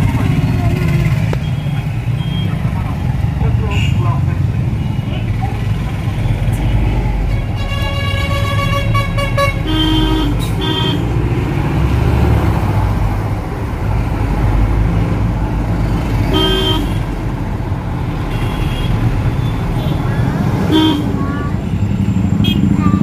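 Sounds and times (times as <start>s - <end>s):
vehicle engine and road rumble: 0.0s - 23.0s
road horns honking: 3.4s - 5.4s, 7.0s - 11.3s, 16.2s - 17.2s, 18.2s - 23.0s.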